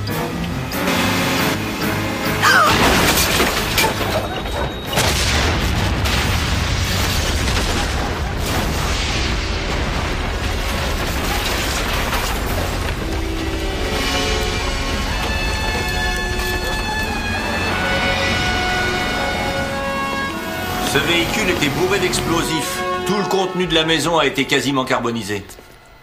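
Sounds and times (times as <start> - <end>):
low rumble of fire and debris: 2.6 - 22.3
explosion blasts: 4.9 - 19.3.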